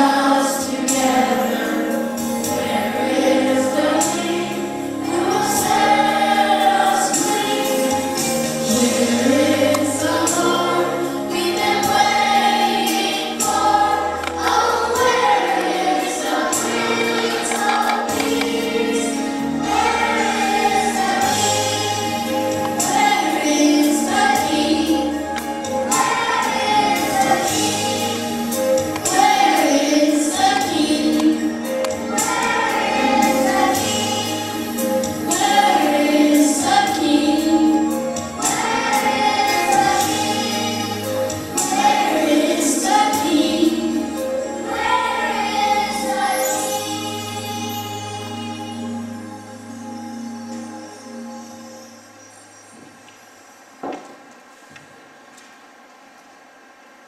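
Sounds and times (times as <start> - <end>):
choir singing: 0.0 - 49.9.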